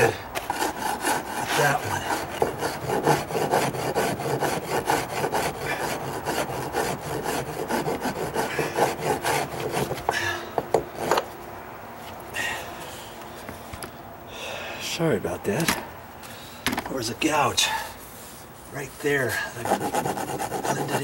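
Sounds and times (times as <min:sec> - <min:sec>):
hand rasp scraping wood: 0:00.0 - 0:11.2, 0:18.2 - 0:21.0.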